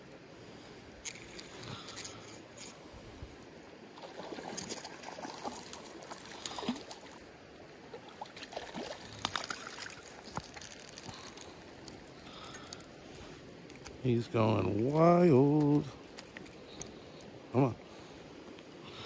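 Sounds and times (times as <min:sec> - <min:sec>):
creek water trickling: 0:00.0 - 0:19.0
small splashes: 0:04.0 - 0:12.8.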